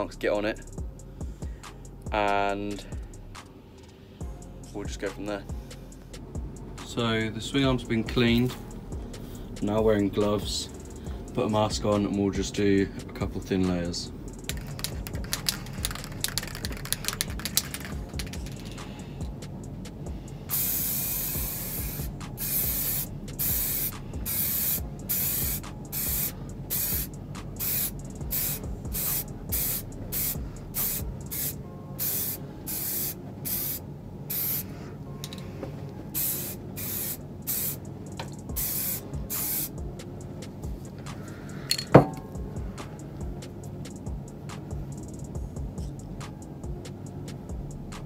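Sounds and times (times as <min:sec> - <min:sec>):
aerosol spray can hissing: 0:14.5 - 0:18.8, 0:20.5 - 0:34.7, 0:36.2 - 0:37.8, 0:38.5 - 0:39.8.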